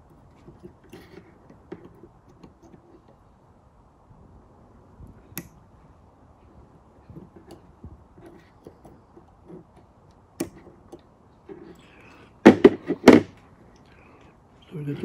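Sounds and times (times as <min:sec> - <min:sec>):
pliers and wire clicking on metal: 0:07.1 - 0:11.1.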